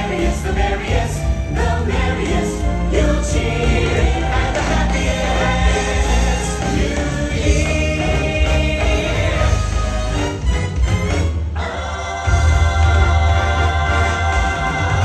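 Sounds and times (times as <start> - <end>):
steady bass line: 0.0 - 11.4
choir singing: 0.0 - 15.0.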